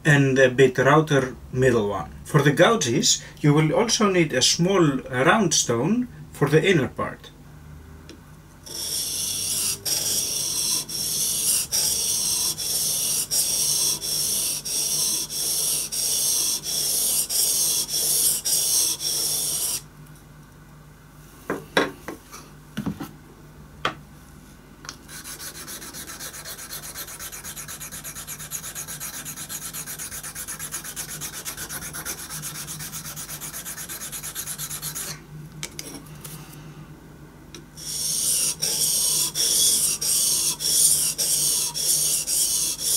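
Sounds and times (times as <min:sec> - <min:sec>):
gouge rubbed on whetstone: 0:08.7 - 0:19.8, 0:25.1 - 0:35.1, 0:37.8 - 0:42.9
slip stone rubbing on stone: 0:08.7 - 0:19.8, 0:25.1 - 0:35.2, 0:37.8 - 0:42.9.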